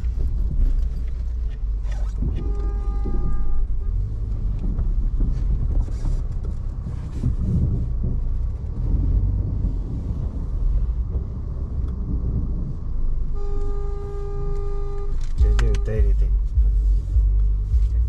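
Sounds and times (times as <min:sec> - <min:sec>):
wind on microphone: 0:00.0 - 0:13.5
road noise: 0:00.0 - 0:18.0
vehicle engine rumble: 0:00.0 - 0:18.0
vehicle horn: 0:02.1 - 0:04.6, 0:13.3 - 0:16.3.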